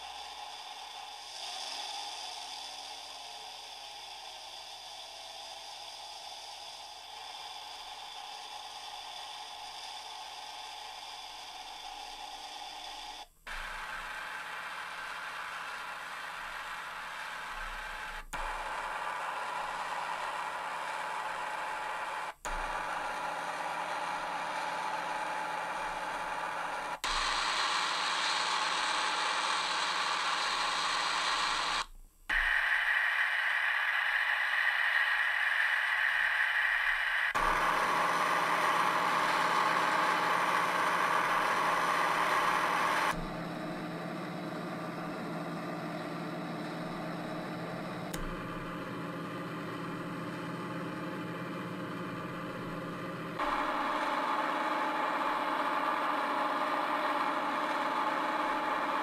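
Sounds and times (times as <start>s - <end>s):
model locomotive running sound: 0.0s - 59.0s.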